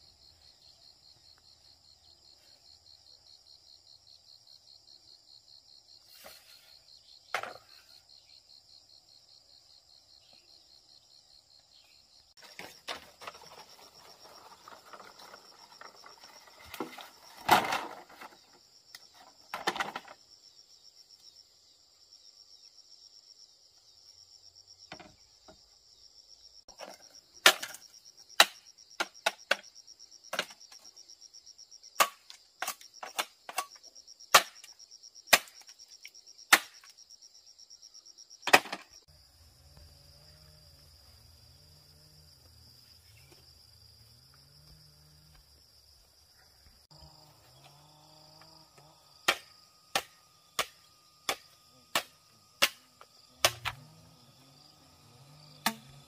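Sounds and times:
high insect chorus: 0.0 - 56.0
machete chopping bamboo: 27.4 - 29.7, 32.0 - 35.7, 36.5 - 36.9, 49.2 - 53.9, 55.6 - 56.0.

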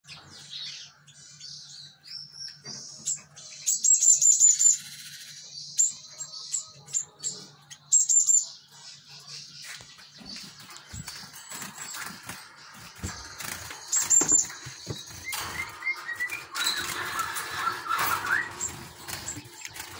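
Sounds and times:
bird rattling call runs: 10.7 - 19.9.

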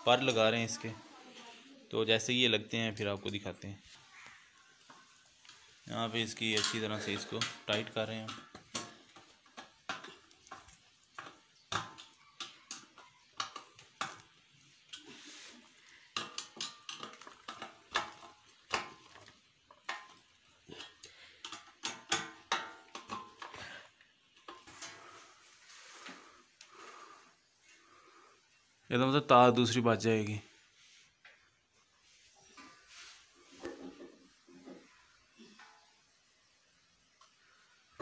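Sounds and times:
metal scraping on metal: 6.2 - 8.5.

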